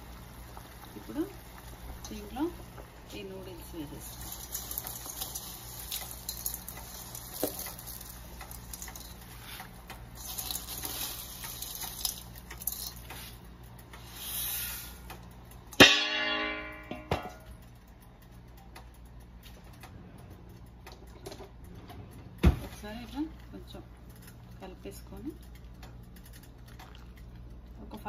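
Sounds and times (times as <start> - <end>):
dry noodles ticking: 0.0 - 16.6, 17.4 - 22.2, 22.8 - 28.0
water boiling in a pot: 0.0 - 19.3, 22.4 - 28.0
dish clanking against metal pot: 15.8 - 17.5.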